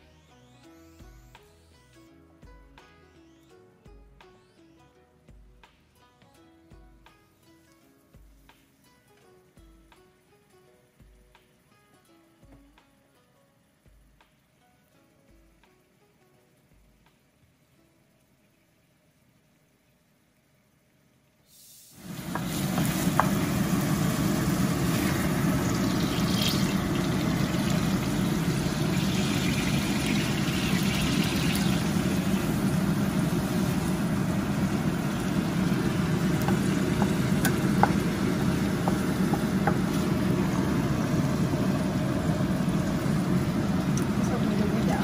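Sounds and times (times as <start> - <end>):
food sizzling in a pan: 21.4 - 45.0.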